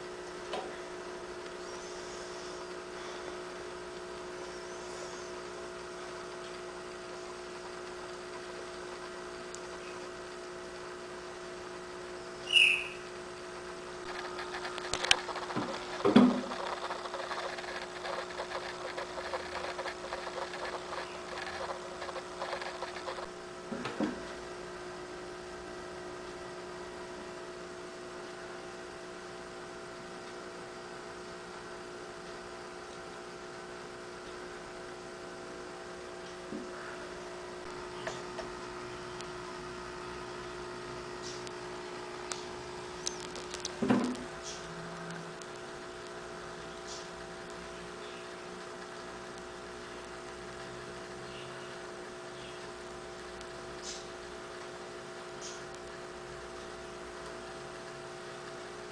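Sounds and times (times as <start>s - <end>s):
aquarium filter pump hum: 0.0s - 58.9s.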